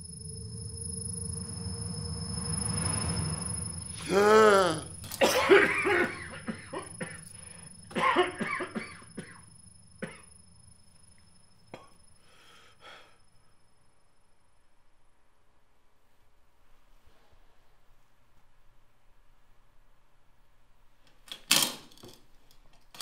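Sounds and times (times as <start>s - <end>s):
man gasping: 4.0s - 4.9s
ragged breathing: 4.0s - 4.9s
man coughing: 4.0s - 7.2s, 7.9s - 9.4s.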